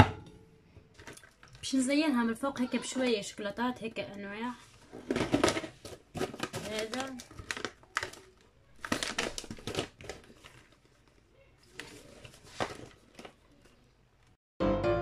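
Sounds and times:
plastic snack bag crackling: 5.1s - 13.8s.

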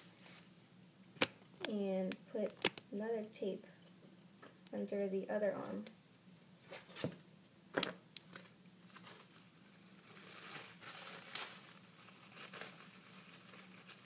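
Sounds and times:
plastic bag crinkling: 8.3s - 14.0s.

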